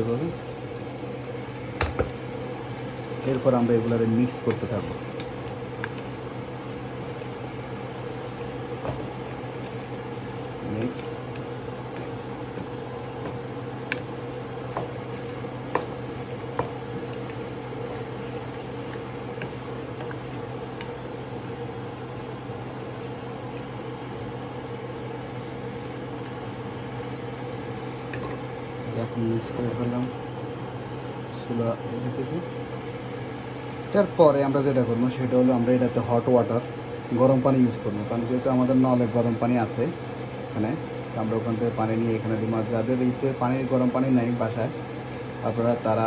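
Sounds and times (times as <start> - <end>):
steady low hum: 0.0 - 46.0
curry bubbling with small pops: 0.1 - 28.2, 30.0 - 31.3.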